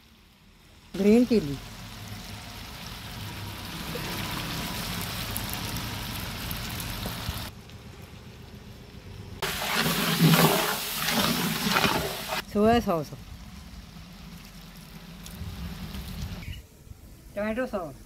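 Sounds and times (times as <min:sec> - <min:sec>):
vegetables sizzling in hot oil: 0:00.0 - 0:07.5, 0:09.4 - 0:12.4.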